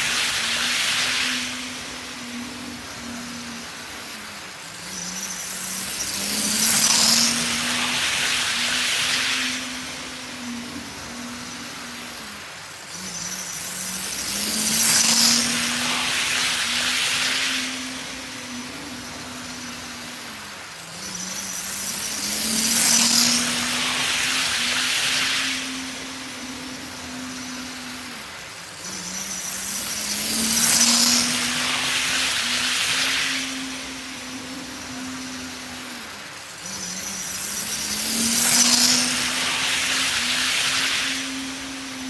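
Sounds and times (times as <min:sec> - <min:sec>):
model train whirring with high whine: 0:00.0 - 0:42.0
steady motor hum: 0:00.0 - 0:42.0.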